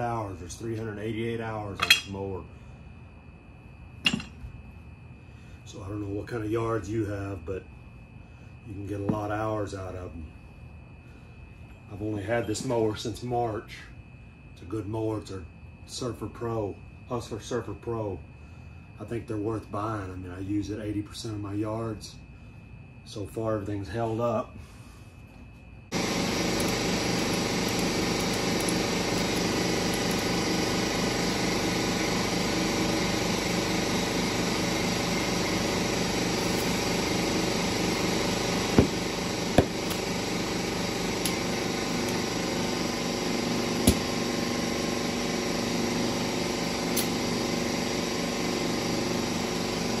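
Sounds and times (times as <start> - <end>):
air compressor running: 25.9 - 50.0.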